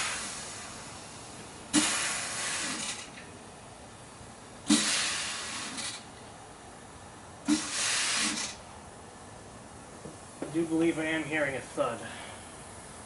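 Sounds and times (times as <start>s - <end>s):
compressed air hissing blasts: 0.0s - 3.2s, 4.6s - 6.1s, 7.4s - 8.6s.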